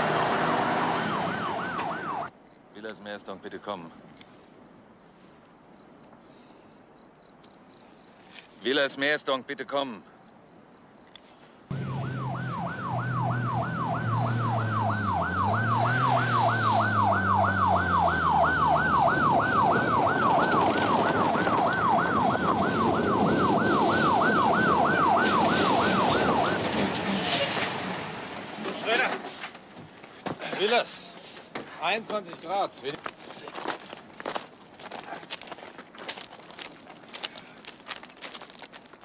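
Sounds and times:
police siren wailing: 0.0 - 2.3, 11.7 - 27.1
vehicle engines: 0.0 - 2.3, 11.7 - 31.8
road noise: 0.0 - 5.7, 11.1 - 39.0.

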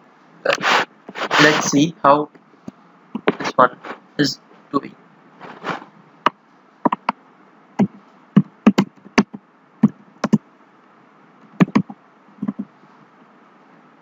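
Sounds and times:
keyboard key clicks: 6.9 - 7.1.

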